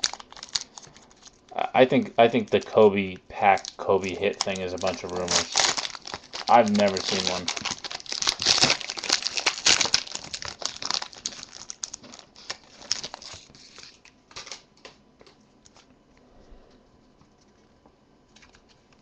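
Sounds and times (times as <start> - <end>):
foil wrapper tearing and crinkling: 0.0 - 1.5, 3.4 - 14.7.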